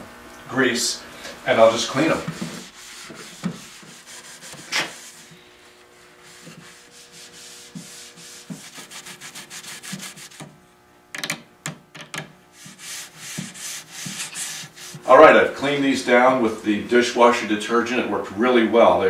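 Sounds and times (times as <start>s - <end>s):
scrubbing a wooden chair: 1.5s - 10.5s, 12.6s - 15.4s.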